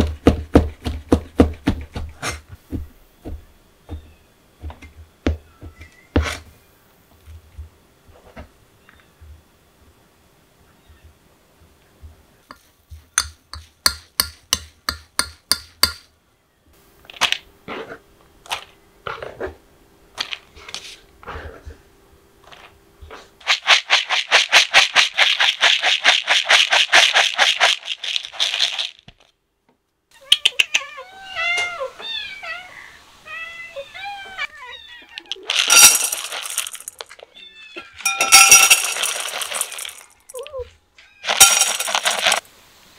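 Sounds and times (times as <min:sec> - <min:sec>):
kibble rattling in bowl: 0:23.4 - 0:29.3, 0:35.2 - 0:37.2, 0:38.0 - 0:40.5, 0:41.2 - 0:42.4
cats meowing: 0:30.1 - 0:35.5, 0:37.1 - 0:38.1.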